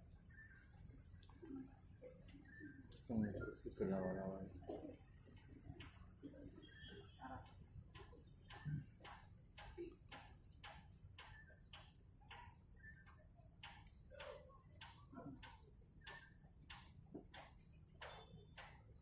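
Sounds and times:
faint regular ticking: 0.1 - 19.0.

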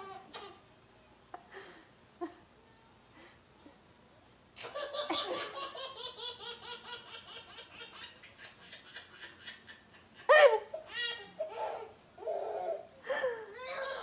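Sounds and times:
baby laughing: 4.6 - 12.8, 13.6 - 14.0.

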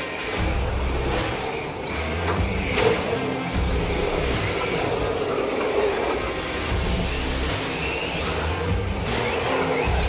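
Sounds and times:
electric toy cars on concrete: 0.0 - 10.0
music playing: 0.0 - 10.0.

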